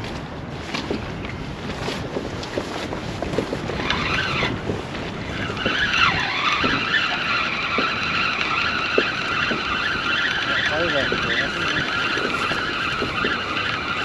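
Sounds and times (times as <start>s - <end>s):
fishing reel whirring: 3.4s - 14.0s.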